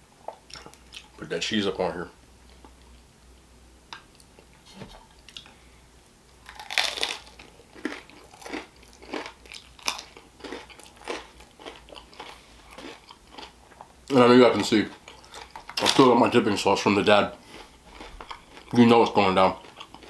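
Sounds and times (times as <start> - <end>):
crunchy chewing: 6.4 - 14.0, 14.6 - 16.1, 17.4 - 20.0.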